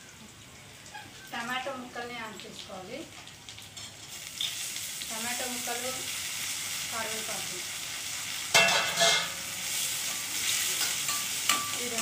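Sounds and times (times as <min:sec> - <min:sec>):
vegetables sizzling in hot oil: 0:00.0 - 0:12.0
metal spatula stirring in pan: 0:08.5 - 0:12.0.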